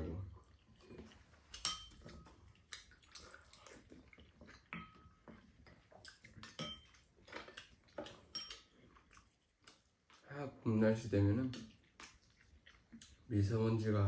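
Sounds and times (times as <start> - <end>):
spoons clinking on ceramic bowls: 1.4 - 2.4, 6.4 - 7.0, 8.0 - 8.8.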